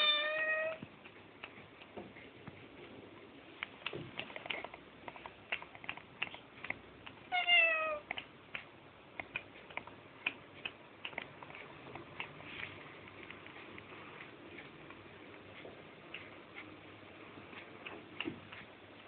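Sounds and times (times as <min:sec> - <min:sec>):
cat meowing: 0:00.0 - 0:00.8, 0:07.3 - 0:08.1
light clicks and taps: 0:00.5 - 0:16.8, 0:17.4 - 0:19.0.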